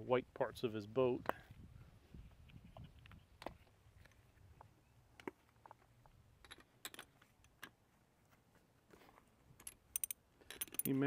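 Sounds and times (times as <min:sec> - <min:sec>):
metallic clinks of hand tools: 0:09.6 - 0:11.0.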